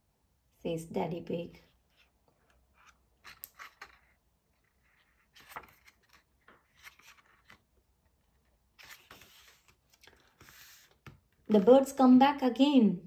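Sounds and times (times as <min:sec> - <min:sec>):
paper pages rustling and tapping: 0:02.8 - 0:07.8, 0:08.8 - 0:11.7.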